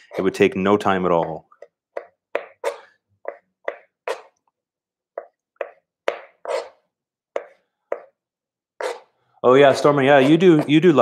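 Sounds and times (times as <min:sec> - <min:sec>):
knife chopping on plastic board: 0:01.1 - 0:04.3, 0:05.1 - 0:08.2, 0:09.6 - 0:11.0.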